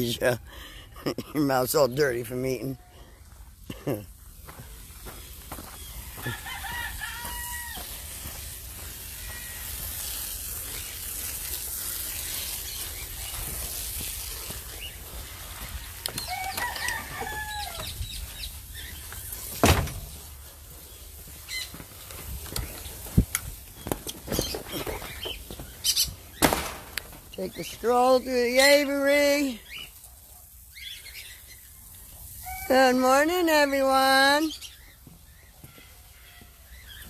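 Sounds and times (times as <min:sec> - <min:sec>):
rooster crowing: 0:06.0 - 0:08.2, 0:09.1 - 0:10.0, 0:15.6 - 0:18.0.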